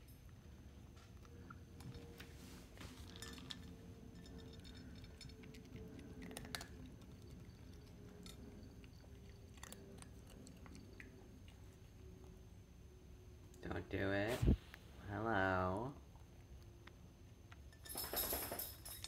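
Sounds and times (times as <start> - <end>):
cat crunching dry food: 2.9 - 12.3.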